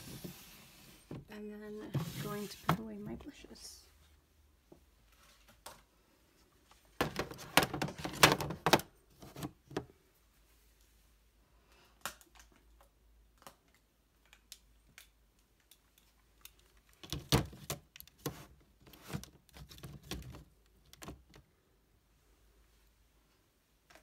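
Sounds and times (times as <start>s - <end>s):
plastic containers clicking and knocking: 7.0s - 9.9s, 17.0s - 21.5s.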